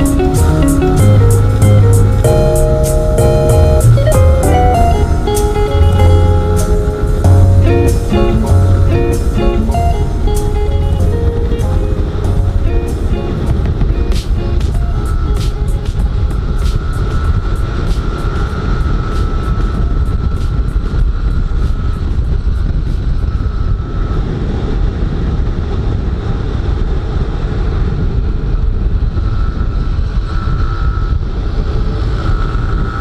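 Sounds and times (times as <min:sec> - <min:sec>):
wind rumble on microphone: 0:00.0 - 0:33.0.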